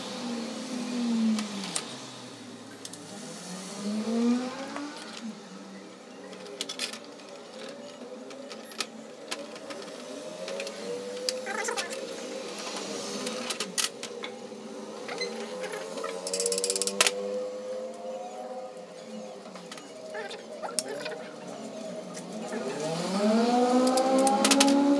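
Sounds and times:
wavering background drone: 2.6 - 24.9
small hand tools clicking: 16.2 - 17.1
rattle of clicks: 16.2 - 17.2.

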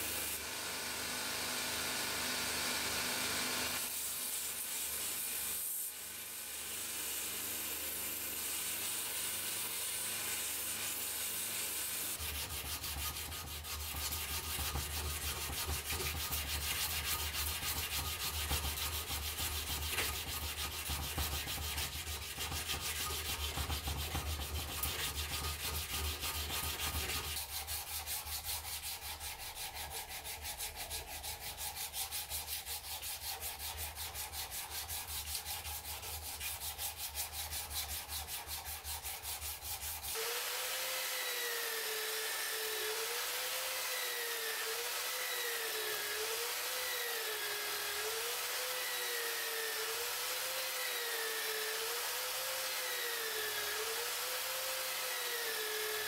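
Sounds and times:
file rasping on wood: 7.0 - 56.0
power tool abrasive disc whirring: 40.1 - 56.0.

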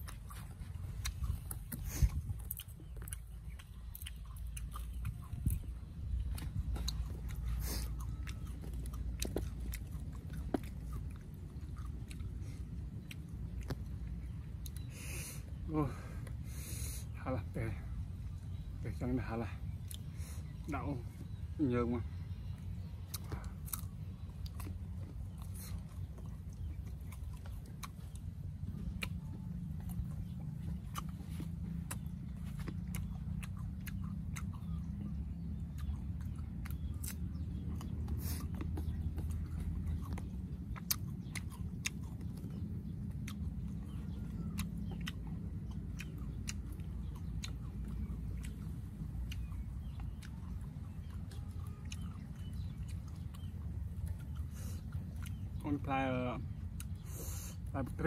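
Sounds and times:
person chewing crisp fruit: 0.0 - 58.0
steady low rumble: 0.0 - 58.0.

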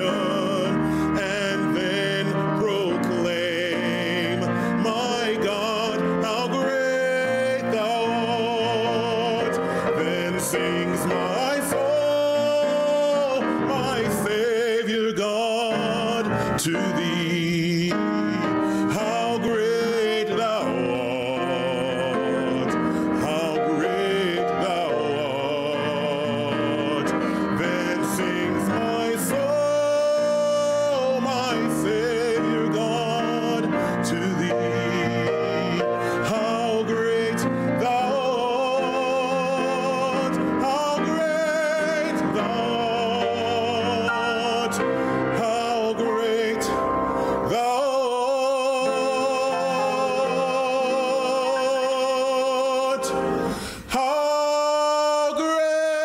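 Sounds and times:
instrumental accompaniment: 0.0 - 56.0
man singing operatically: 0.0 - 56.0.

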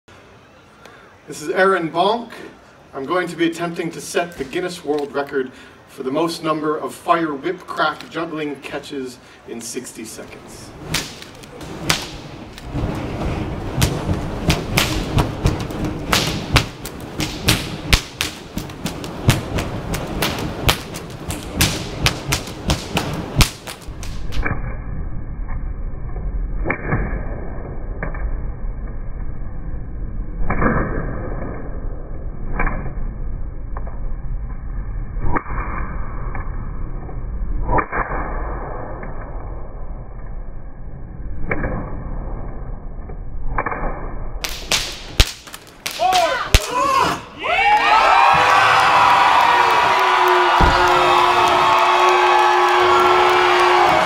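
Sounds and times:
low rumble: 10.4 - 44.4
whip cracks: 10.8 - 13.0, 13.7 - 24.5, 44.4 - 47.1.

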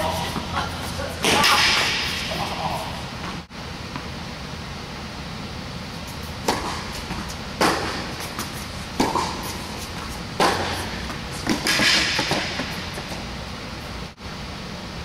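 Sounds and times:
low hall hum: 0.0 - 15.0
tennis ball hit by rackets: 1.2 - 2.6, 6.4 - 13.2
ball bouncing on hard court: 6.4 - 13.2.

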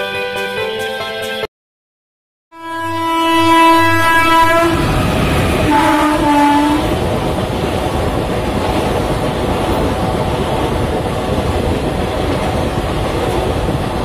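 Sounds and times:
train horn blasts: 2.5 - 7.0
train coaches rumbling past: 2.6 - 14.0.

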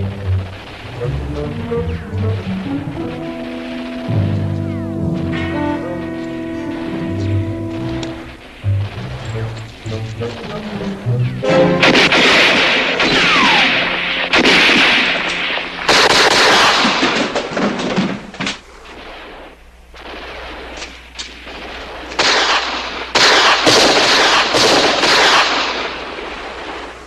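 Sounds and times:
rapid gunfire: 0.0 - 5.3, 10.2 - 11.1, 11.7 - 27.0.

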